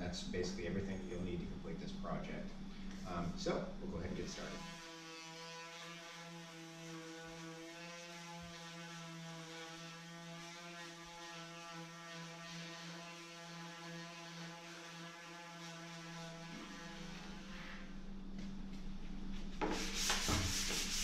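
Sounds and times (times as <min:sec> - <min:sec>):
electric sander humming: 0:04.1 - 0:17.7.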